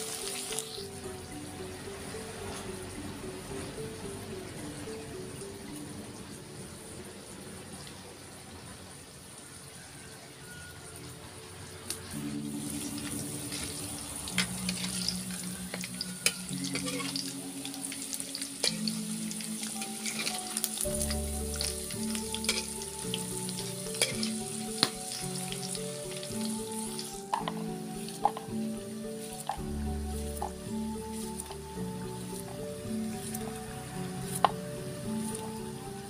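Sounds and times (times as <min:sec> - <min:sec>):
hot oil sizzling: 0:00.0 - 0:01.3, 0:11.8 - 0:36.0
background music: 0:00.0 - 0:08.4, 0:09.8 - 0:36.0
metal spatula scraping: 0:12.9 - 0:26.2.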